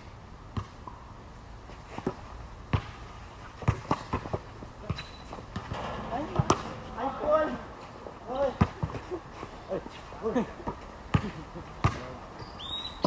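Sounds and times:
basketball bouncing on hard court: 0:03.6 - 0:07.1, 0:11.1 - 0:12.1.

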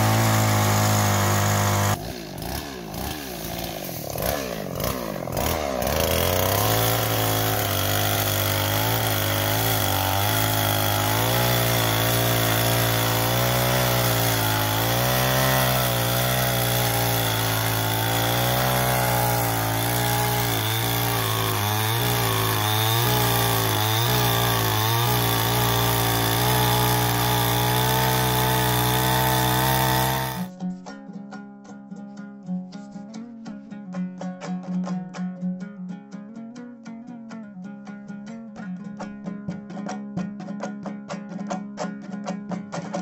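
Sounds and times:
chainsaw cutting log: 0:00.0 - 0:30.5.

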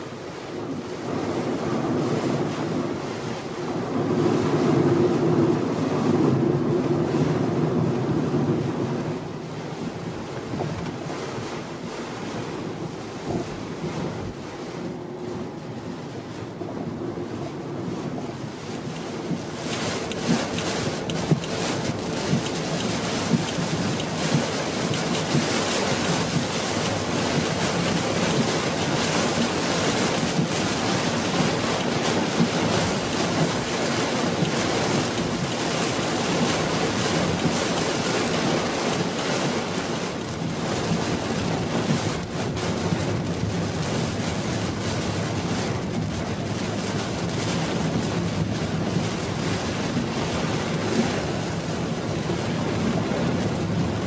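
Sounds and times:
heavy rain on car roof: 0:00.0 - 0:54.0
tyre noise on wet road: 0:14.9 - 0:54.0.

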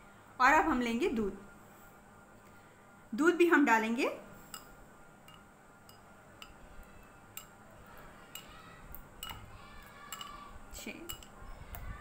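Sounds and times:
metal spoon clinking on bowls: 0:04.4 - 0:07.6, 0:08.2 - 0:11.5.

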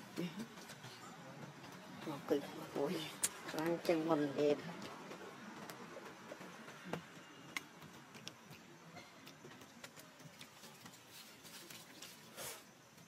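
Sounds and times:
monkeys rustling in dry leaves: 0:10.4 - 0:12.7.

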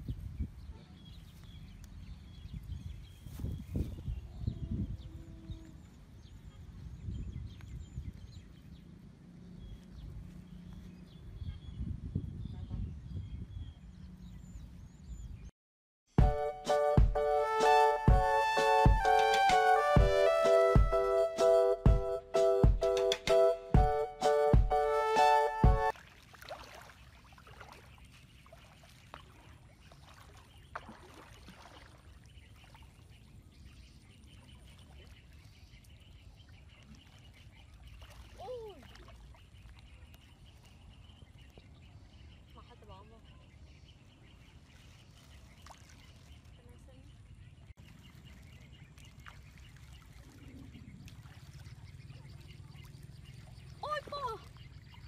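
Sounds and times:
water sloshing and splashing: 0:25.8 - 0:41.8, 0:44.4 - 0:55.0.

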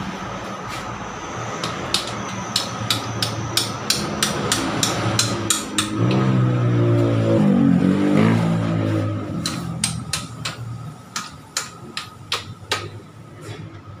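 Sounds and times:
low mechanical drone: 0:00.0 - 0:14.0
hammer tapping on metal: 0:01.6 - 0:06.3, 0:09.4 - 0:13.0.

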